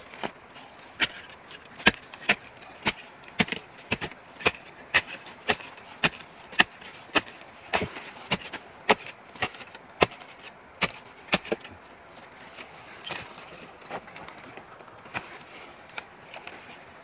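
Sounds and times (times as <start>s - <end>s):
shovel chopping into soil: 1.0s - 11.8s.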